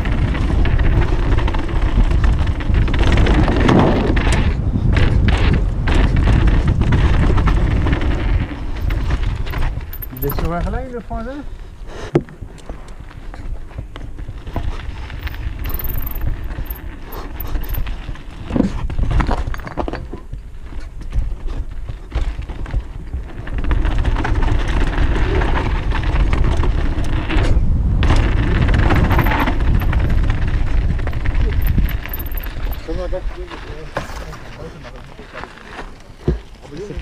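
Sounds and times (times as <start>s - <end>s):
tyres rolling over dirt and stones: 0.0s - 11.4s, 14.1s - 37.0s
bike chain and frame rattling: 0.0s - 11.5s, 14.2s - 34.0s
wind buffeting microphone: 0.0s - 35.4s.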